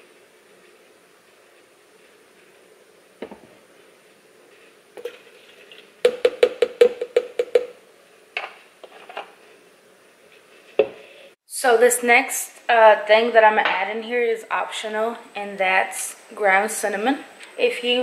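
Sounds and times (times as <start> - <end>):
items knocking on counter: 6.1 - 7.7.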